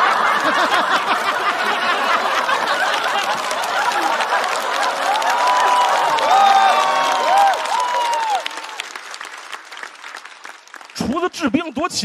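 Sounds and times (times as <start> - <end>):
audience laughing: 0.0 - 6.1
audience clapping: 0.0 - 12.0.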